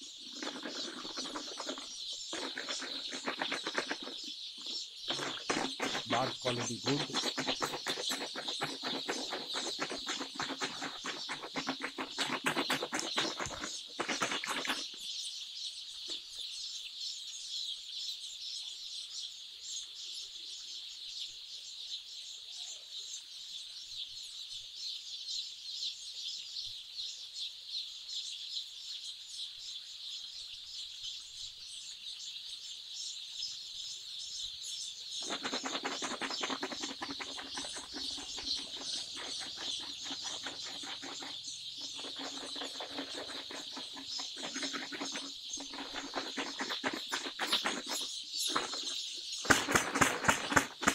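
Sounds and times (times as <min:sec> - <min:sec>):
coarse rustling: 0:00.0 - 0:15.0, 0:35.2 - 0:50.9
chicks peeping: 0:00.0 - 0:15.1, 0:35.1 - 0:50.9.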